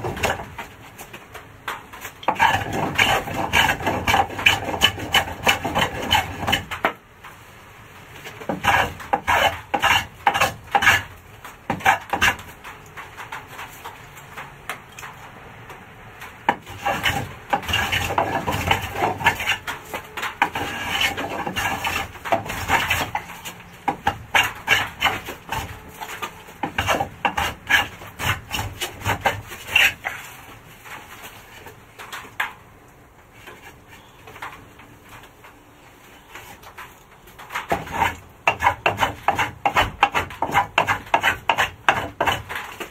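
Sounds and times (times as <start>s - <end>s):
hand plane scraping wood: 2.2s - 6.8s, 8.3s - 11.1s, 11.7s - 12.5s, 16.5s - 30.4s, 37.6s - 42.9s.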